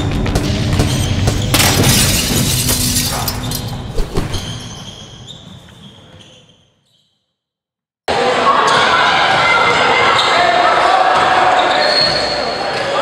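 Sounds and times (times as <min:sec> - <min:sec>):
glass shattering effect: 0:01.5 - 0:03.9.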